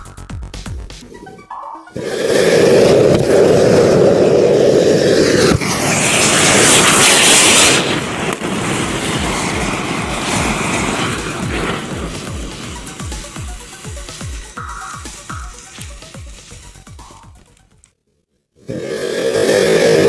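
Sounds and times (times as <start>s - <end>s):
fountain fireworks hissing: 1.9s - 17.3s, 18.7s - 20.0s.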